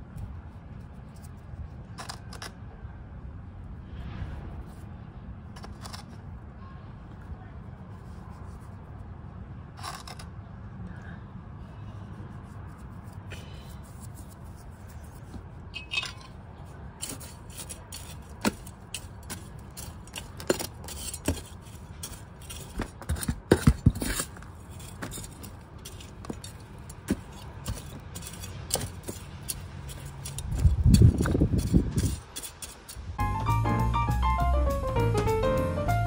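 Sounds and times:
trowel digging in soil: 9.8s - 10.4s, 12.7s - 33.2s.

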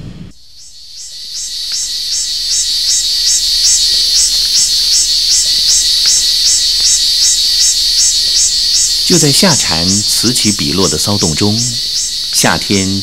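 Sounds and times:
cicada pulsing song: 0.2s - 13.0s.

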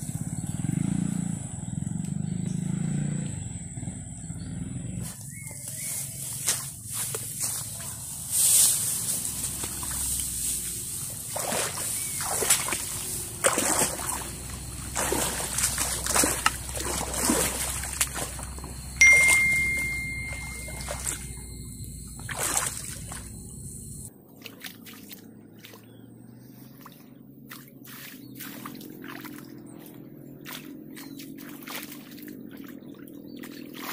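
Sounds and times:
grass rustling: 5.0s - 21.2s
water splashing and sloshing: 6.0s - 33.9s
water trickling: 9.5s - 24.1s
electronic chime: 19.0s - 24.1s.

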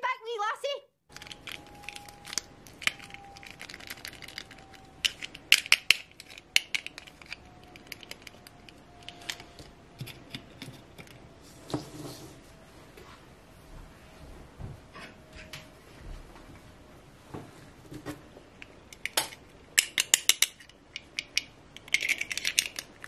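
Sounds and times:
plastic clicks and rustles: 1.1s - 11.2s, 18.6s - 23.0s.

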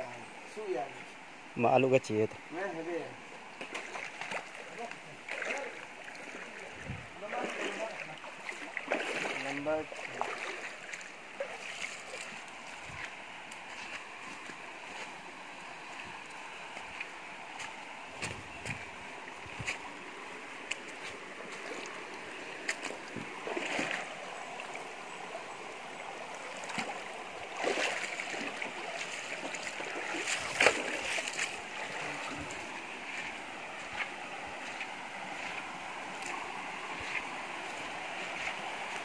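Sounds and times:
river flowing: 0.0s - 39.0s.

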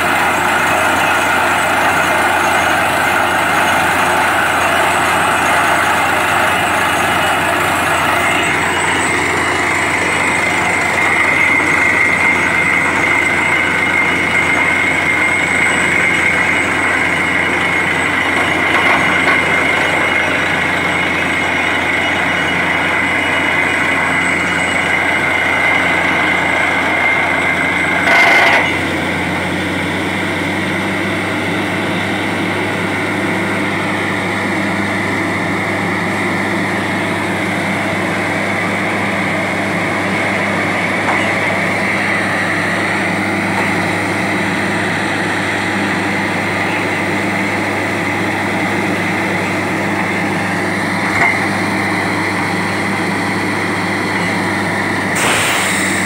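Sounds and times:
drilling rig engine droning: 0.0s - 56.0s
air blowing out cuttings: 55.1s - 56.0s.

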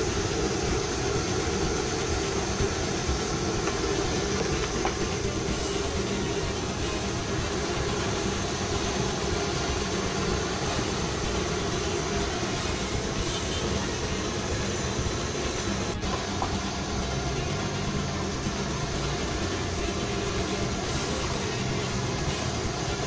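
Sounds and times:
batter sizzling in hot oil: 0.0s - 23.0s.

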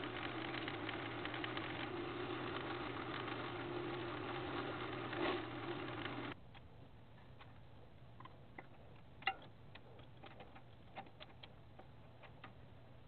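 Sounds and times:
lathe motor: 0.0s - 6.4s.

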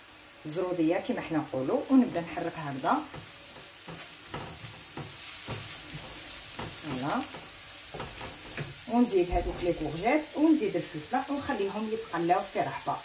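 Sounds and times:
vegetables sizzling in oil: 0.0s - 13.0s
utensil scraping and tapping pan: 3.1s - 9.9s.

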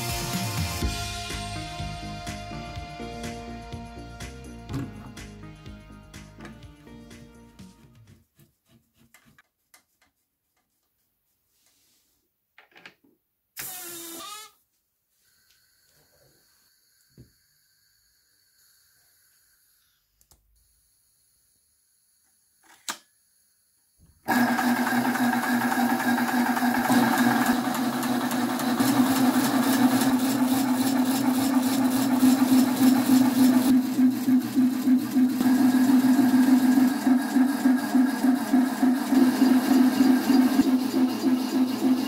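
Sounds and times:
air compressor pumping: 13.6s - 14.5s, 24.3s - 42.0s.

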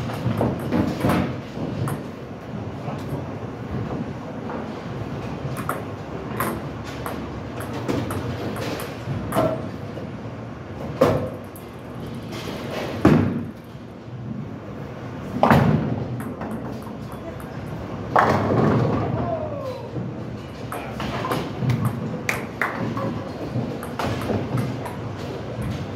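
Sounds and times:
bowling balls rolling: 0.0s - 25.9s
bowling pins crashing: 18.1s - 19.3s.

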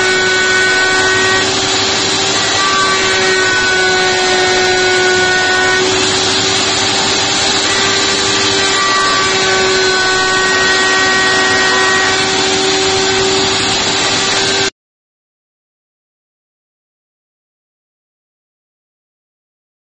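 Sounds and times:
router bit cutting wood: 0.0s - 14.7s
router motor whine: 0.0s - 14.7s.

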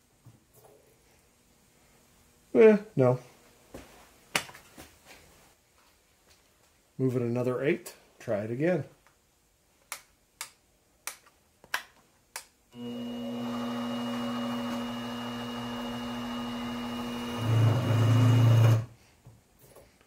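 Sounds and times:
mill motor whining: 12.8s - 18.9s.

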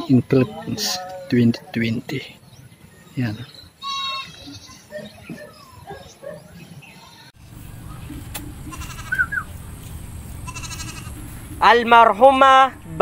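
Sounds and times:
goat bleating: 3.8s - 4.9s, 8.6s - 9.5s, 10.4s - 11.3s.

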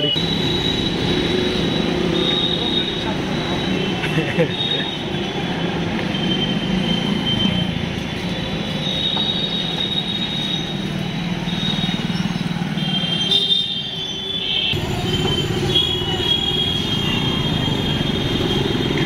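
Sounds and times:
motorbike and scooter engines: 0.0s - 19.0s
crowd: 1.9s - 7.6s.

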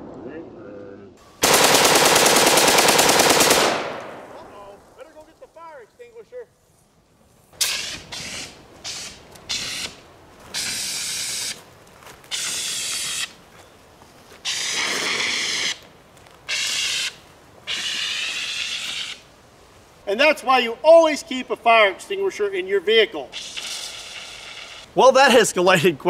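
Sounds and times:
fire extinguisher hissing: 23.3s - 24.9s.

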